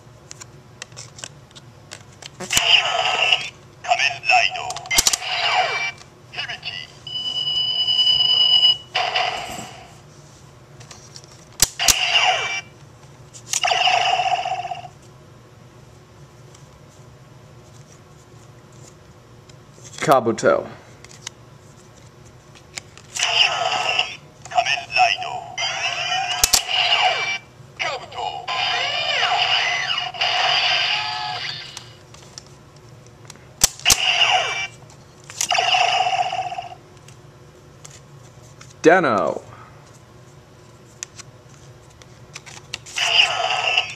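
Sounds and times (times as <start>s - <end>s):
toy electronic sound effect: 2.5s - 3.5s, 4.9s - 5.9s, 11.8s - 12.7s, 13.6s - 14.9s, 25.6s - 27.4s, 28.1s - 32.0s, 33.9s - 34.8s, 35.5s - 36.8s, 43.0s - 43.9s.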